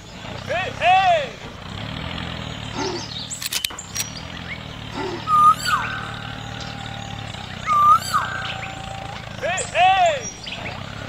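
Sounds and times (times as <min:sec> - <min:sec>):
low engine drone: 0:00.0 - 0:11.0
sharp clicks: 0:03.2 - 0:04.4
bird-like whistled calls: 0:04.0 - 0:10.9.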